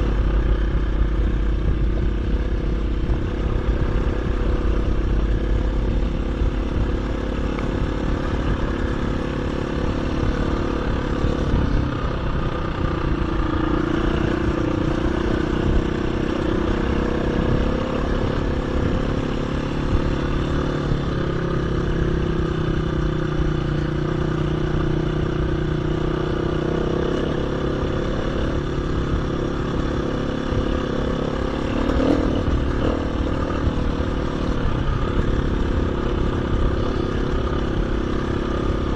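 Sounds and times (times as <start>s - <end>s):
dirt bike engine running: 0.0s - 38.9s
low wind rumble: 0.0s - 38.9s.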